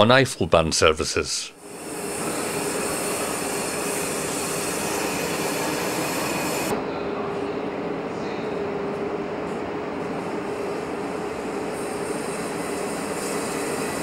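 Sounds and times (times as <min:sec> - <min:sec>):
train wheels on rail: 0:01.8 - 0:06.7, 0:08.9 - 0:14.0
faint constant hum: 0:06.7 - 0:13.0.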